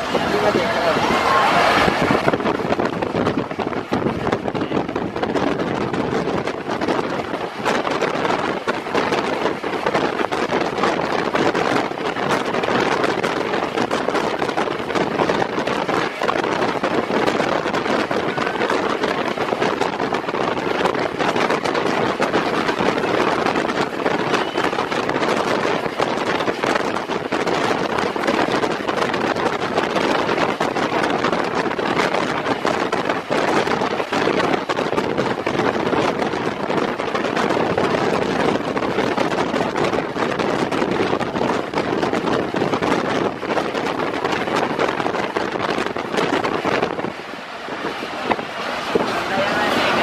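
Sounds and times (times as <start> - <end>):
locomotive running noise: 0.0 - 50.0
train wheels rushing on rails: 0.0 - 50.0
wind buffeting microphone: 0.0 - 50.0.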